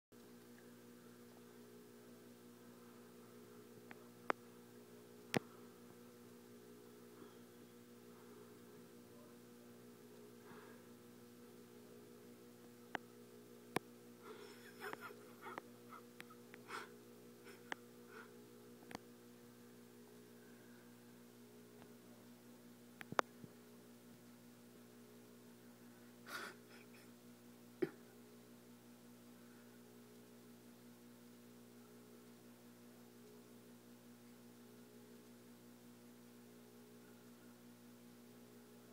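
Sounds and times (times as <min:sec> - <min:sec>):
low electrical hum: 0:00.2 - 0:38.9.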